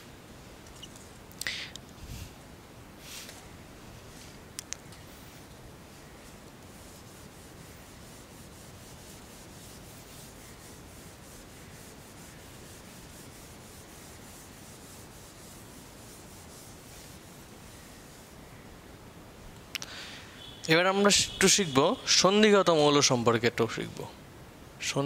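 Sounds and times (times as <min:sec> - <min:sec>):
eraser scrubbing whiteboard: 0:06.2 - 0:18.4.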